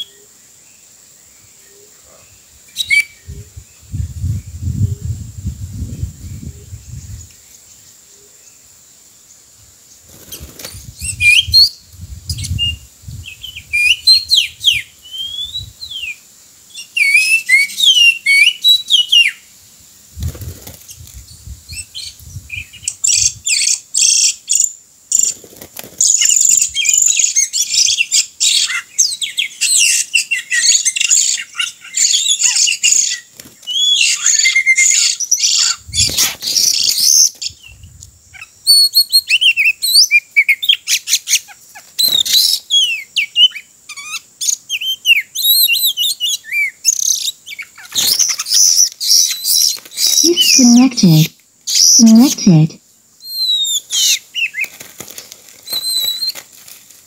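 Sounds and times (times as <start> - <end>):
bird song whistles and chirps: 1.6 - 5.2, 10.2 - 19.4, 26.0 - 50.9, 51.7 - 52.2, 53.2 - 54.7, 55.6 - 56.4.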